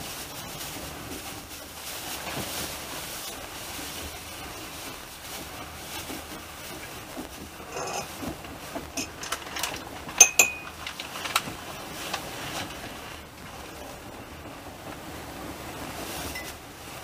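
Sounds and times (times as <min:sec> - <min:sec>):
train carriage noise: 0:00.0 - 0:17.0
tableware clinking: 0:07.6 - 0:08.1, 0:09.0 - 0:09.4, 0:10.2 - 0:10.8.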